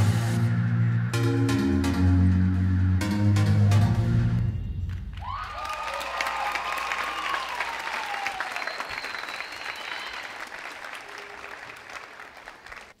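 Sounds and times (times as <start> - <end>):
audience applauding: 4.9 - 13.0
whoops and screams: 5.2 - 10.4.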